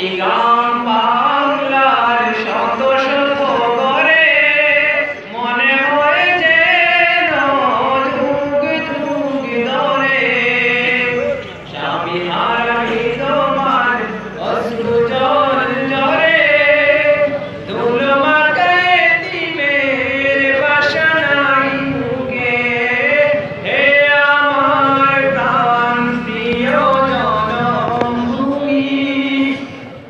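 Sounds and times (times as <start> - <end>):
man singing into a microphone: 0.0 - 30.0.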